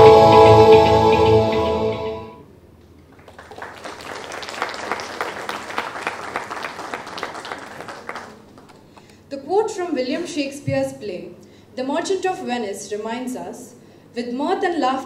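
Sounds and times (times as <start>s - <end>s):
audience applauding: 3.1s - 9.1s.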